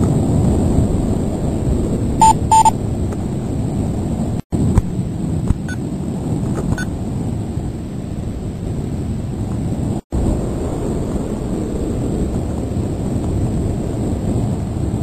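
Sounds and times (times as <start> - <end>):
wind buffeting microphone: 0.0 - 15.0
short beeps: 2.2 - 2.8.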